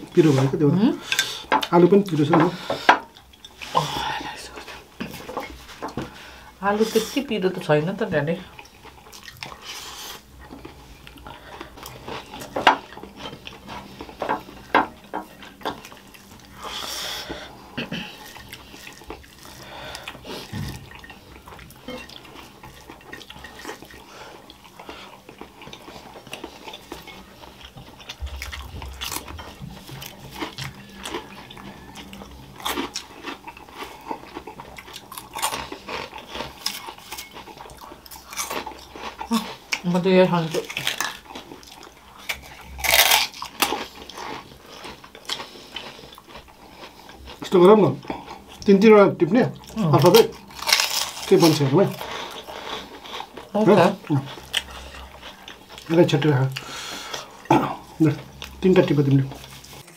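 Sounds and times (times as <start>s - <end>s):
chewing: 8.4s - 59.9s.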